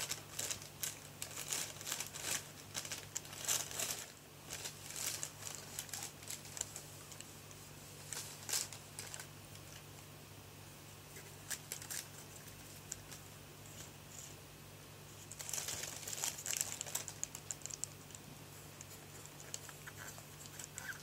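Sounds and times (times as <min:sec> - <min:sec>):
plastic bag crinkling: 0:00.0 - 0:07.3, 0:08.0 - 0:09.9, 0:11.4 - 0:13.2, 0:15.2 - 0:18.2, 0:18.8 - 0:21.0.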